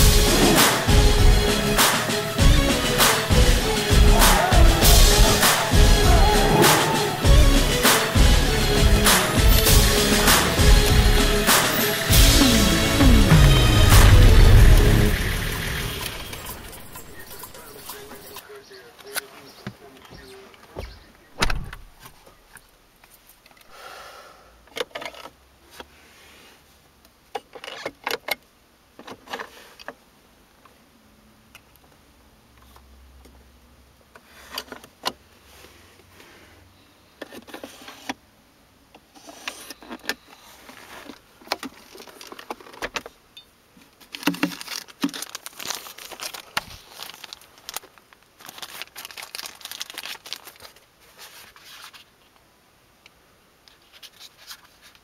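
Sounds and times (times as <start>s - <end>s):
crackly rustling: 39.0s - 52.5s, 53.6s - 55.0s.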